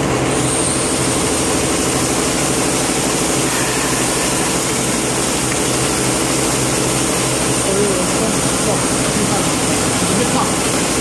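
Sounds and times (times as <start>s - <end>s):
machine humming and chattering: 0.0s - 11.0s.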